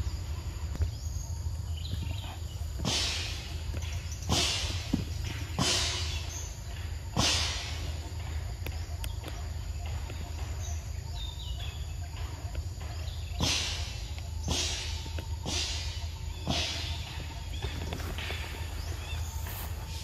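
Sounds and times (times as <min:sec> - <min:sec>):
faint bird chirps: 0:00.0 - 0:20.0.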